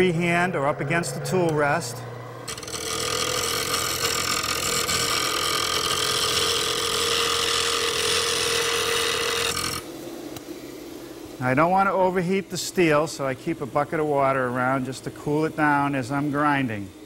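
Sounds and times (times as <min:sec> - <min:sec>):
bench grinder hum: 0:00.0 - 0:10.5.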